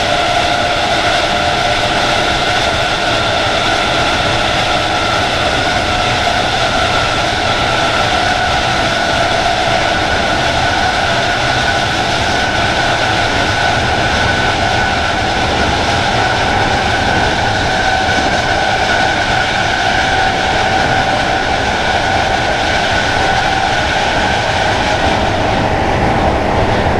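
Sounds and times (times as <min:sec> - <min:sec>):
electric train motors whining: 0:00.0 - 0:26.9
train rumbling on track: 0:00.0 - 0:26.9.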